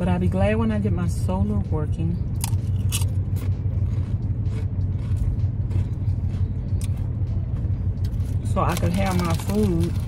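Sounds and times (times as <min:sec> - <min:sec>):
van engine running: 0:00.0 - 0:10.0
chips crunching while chewed: 0:02.4 - 0:10.0.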